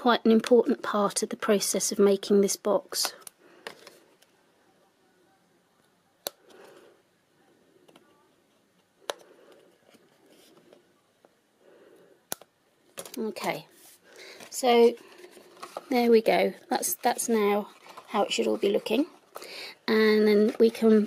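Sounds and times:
paper rustling: 13.7s - 19.6s.

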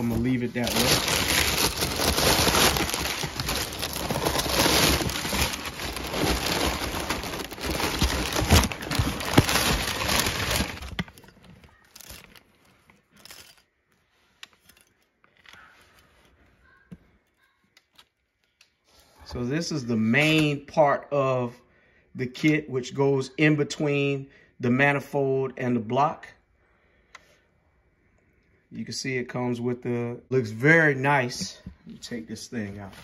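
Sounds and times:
packing paper crinkling: 0.0s - 13.6s.

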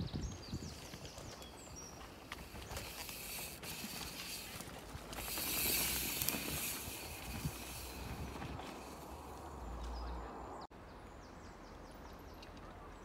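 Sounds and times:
bike tyres rolling on dirt: 0.0s - 10.2s
clicking bicycle freewheel: 2.5s - 9.1s.

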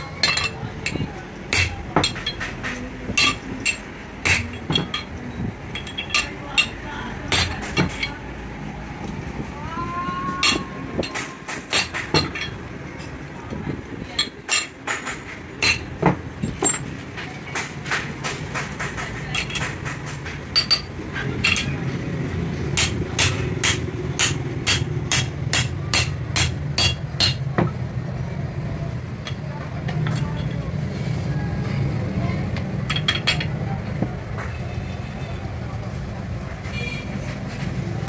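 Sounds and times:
metal parts clinking: 0.0s - 8.2s, 10.4s - 13.3s, 14.1s - 17.3s, 19.3s - 22.0s, 29.2s - 30.7s, 32.5s - 33.6s.

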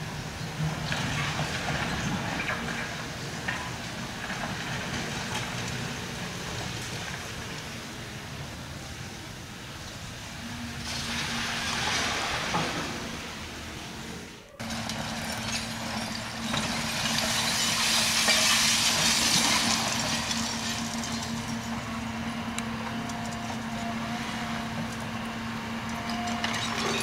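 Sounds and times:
demolition machinery engine drone: 0.0s - 27.0s.

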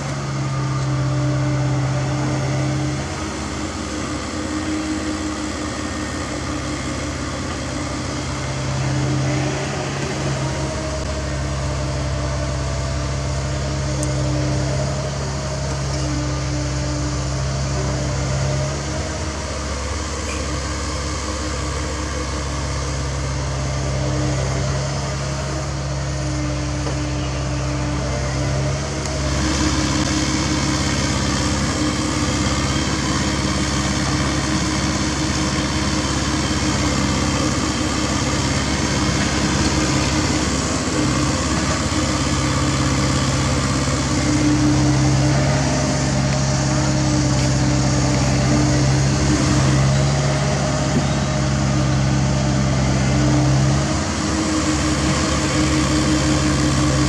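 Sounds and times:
excavator diesel engine humming: 0.0s - 57.0s
hydraulics digging soil: 0.0s - 57.0s.

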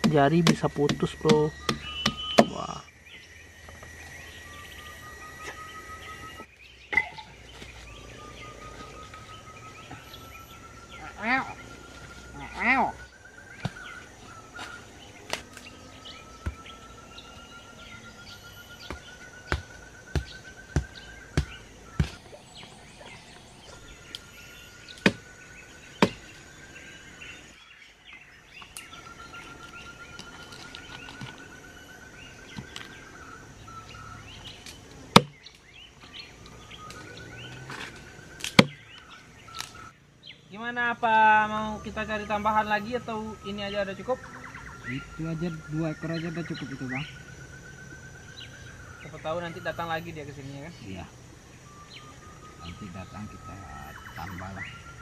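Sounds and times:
knife chopping meat and bones: 0.0s - 2.5s.

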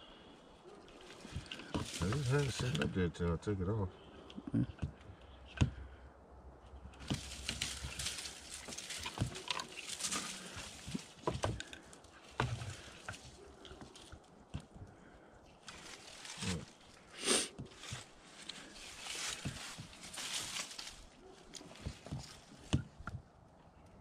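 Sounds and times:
dry leaves crunching underfoot: 1.0s - 2.9s, 7.0s - 14.2s, 15.6s - 22.7s.

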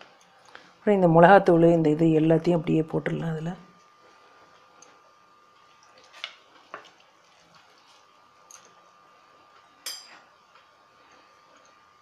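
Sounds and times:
spoon clinking against bowl: 9.8s - 10.2s.

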